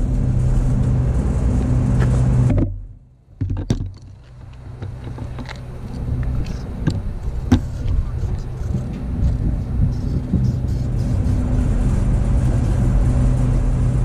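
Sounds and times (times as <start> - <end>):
motor humming: 0.0 - 14.0
handling knocks and clicks: 3.4 - 10.5.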